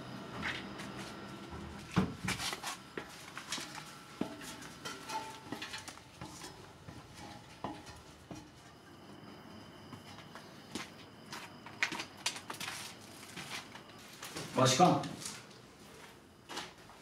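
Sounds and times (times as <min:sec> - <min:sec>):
footsteps on steel ladder: 0:01.8 - 0:08.7
metal clanks: 0:04.2 - 0:08.5.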